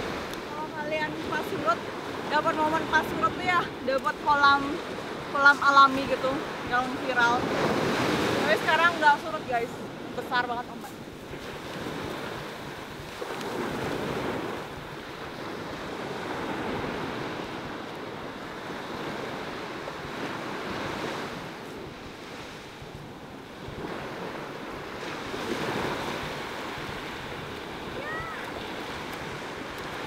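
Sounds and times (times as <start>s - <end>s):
ocean surf breaking: 0.0s - 30.0s.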